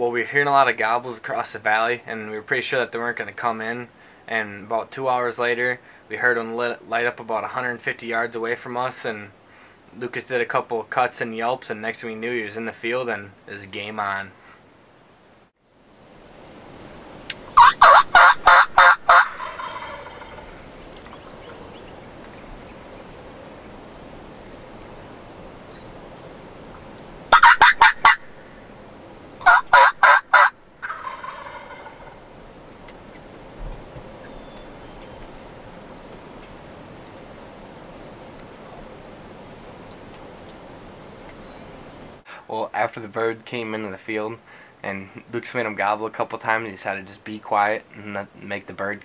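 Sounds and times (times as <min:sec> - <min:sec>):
turkey gobbling: 0:17.3 - 0:33.4.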